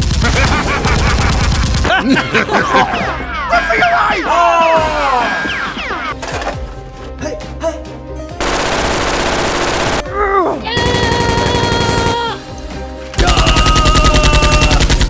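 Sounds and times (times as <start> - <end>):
automatic gunfire bursts: 8.4 - 10.0, 10.8 - 12.2.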